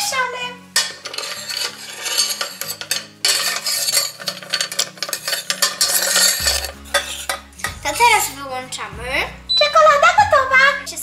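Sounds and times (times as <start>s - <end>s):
metal spoon scraping a steel bowl: 0.7s - 7.9s.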